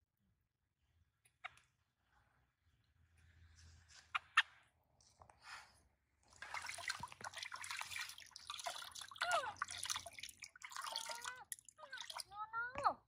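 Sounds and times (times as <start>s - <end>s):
water splashing and dripping: 6.3s - 12.4s.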